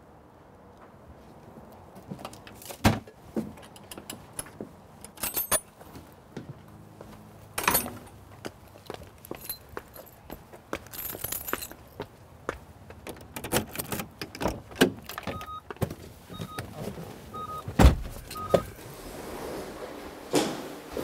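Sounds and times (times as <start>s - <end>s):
car keys jangling: 5.0s - 5.7s, 9.3s - 11.9s, 13.1s - 15.6s
short electronic beeps: 15.4s - 15.6s, 16.3s - 16.6s, 17.3s - 18.8s
car door shutting: 17.6s - 18.8s.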